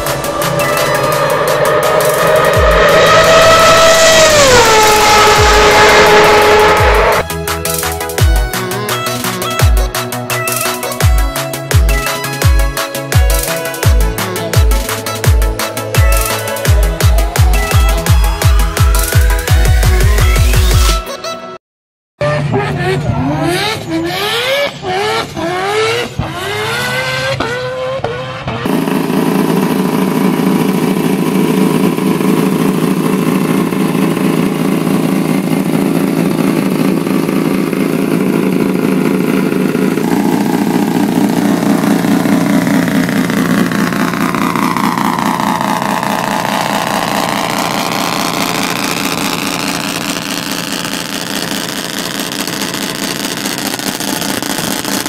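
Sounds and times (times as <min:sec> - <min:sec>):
short rising sweeps: 0:00.0 - 0:07.2
rotary engine idling: 0:28.7 - 0:55.0.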